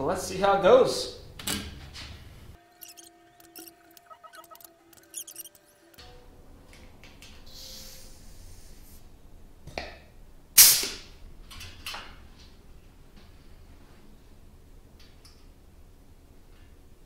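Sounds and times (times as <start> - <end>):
rivet squeezer stroke: 2.8 - 6.0.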